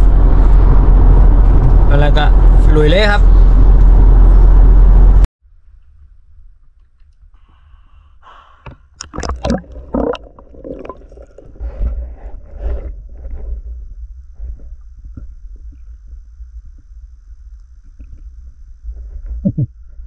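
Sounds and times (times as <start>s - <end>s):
car rumble inside cabin: 0.0s - 5.3s
gurgling water: 9.0s - 12.8s.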